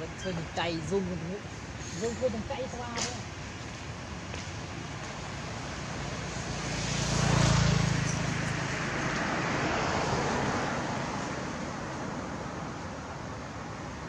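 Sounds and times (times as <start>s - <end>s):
motor vehicle passing: 0.0s - 12.4s.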